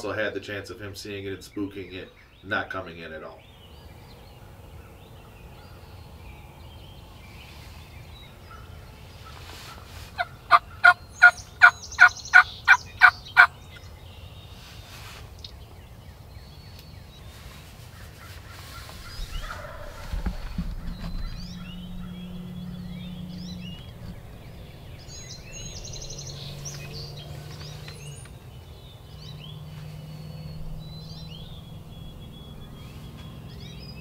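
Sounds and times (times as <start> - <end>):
faint birdsong: 0.0 - 34.0
wild turkey yelping: 8.5 - 13.5, 18.1 - 24.4.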